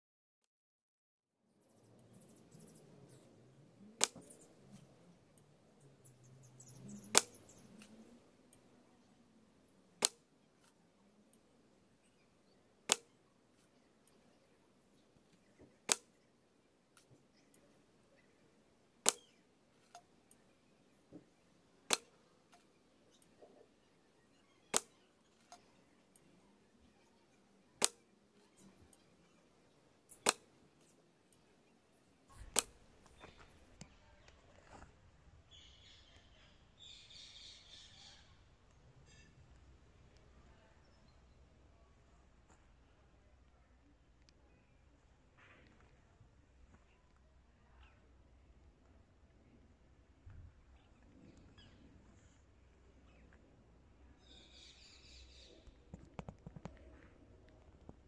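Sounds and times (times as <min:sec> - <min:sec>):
arrows striking foam target: 0:19.0 - 0:19.2, 0:21.9 - 0:22.1.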